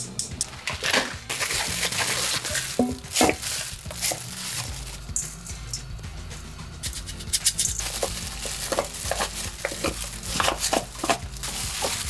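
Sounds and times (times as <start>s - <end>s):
utensil scraping and clicking on pan: 8.7s - 12.0s.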